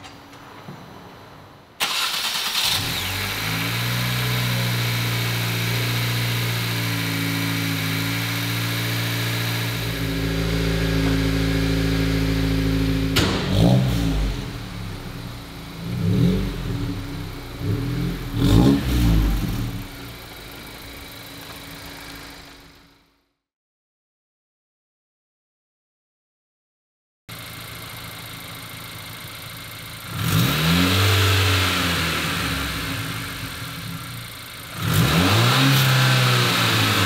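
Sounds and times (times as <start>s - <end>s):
car engine revving: 1.8s - 22.9s, 27.5s - 37.0s
car engine idling: 1.9s - 23.1s, 27.3s - 35.1s.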